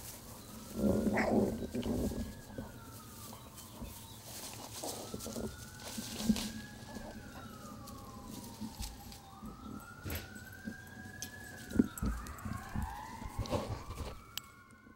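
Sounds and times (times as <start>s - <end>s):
distant siren wailing: 0.0s - 14.9s
thumps and rustles: 11.6s - 14.3s.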